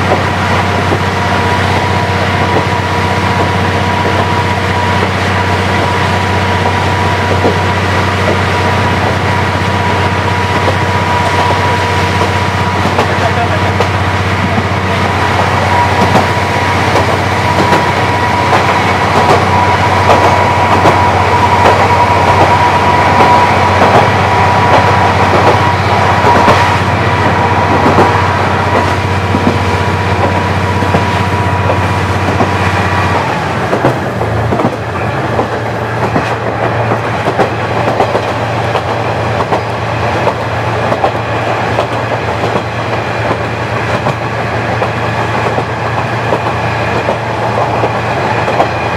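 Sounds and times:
diesel railcar engine hum: 0:00.0 - 0:48.9
wheels clicking over rail joints: 0:27.3 - 0:48.8.

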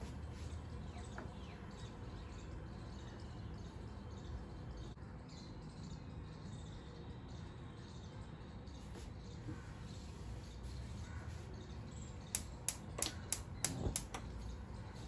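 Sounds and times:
low background hum: 0:00.0 - 0:15.0
sharp clicks: 0:12.3 - 0:14.4.

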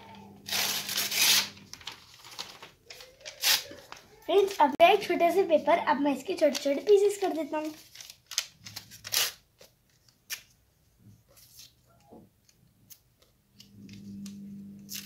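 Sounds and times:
paper tearing: 0:00.4 - 0:04.6, 0:06.5 - 0:09.7, 0:14.8 - 0:15.0
low steady hum: 0:13.6 - 0:15.0.

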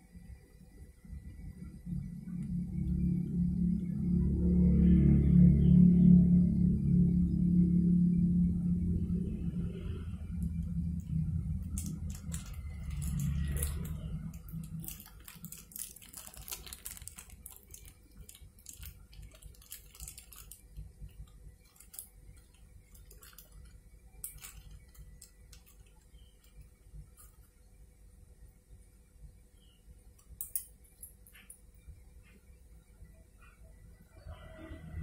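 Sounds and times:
low drone: 0:01.0 - 0:27.5
plastic bag crinkling: 0:10.4 - 0:27.5.

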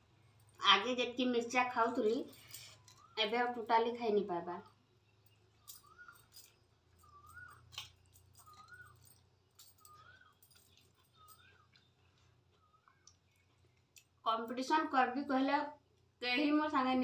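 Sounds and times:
animal wavering call: 0:05.7 - 0:07.8.

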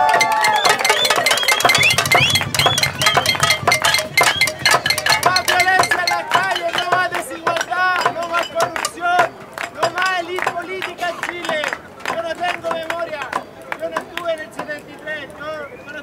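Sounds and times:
pots and pans banging: 0:00.0 - 0:10.1
crowd shouting: 0:00.0 - 0:15.0.

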